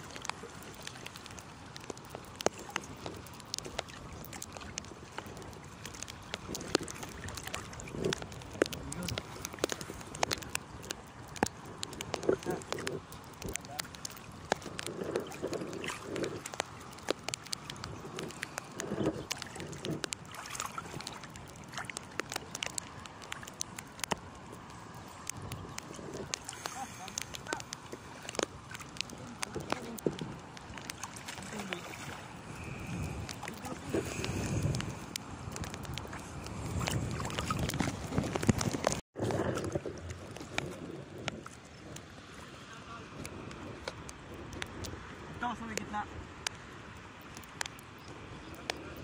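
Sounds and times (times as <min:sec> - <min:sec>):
small sharp splashes and drips: 0:00.0 - 0:49.0
water sloshing and splashing: 0:00.0 - 0:49.0
wind rumbling on microphone: 0:00.0 - 0:49.0.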